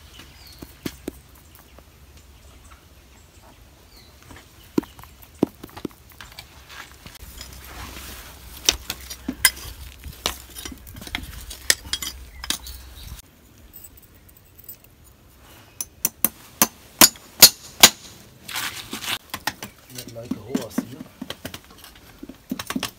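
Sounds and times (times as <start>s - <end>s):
metal tools clinking on horseshoe: 7.2s - 7.8s, 8.6s - 16.2s.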